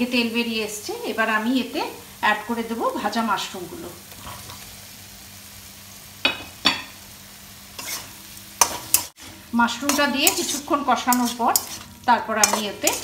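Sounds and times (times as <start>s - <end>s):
masala sizzling in pan: 0.0s - 13.0s
metal spatula scraping pan: 7.7s - 13.0s.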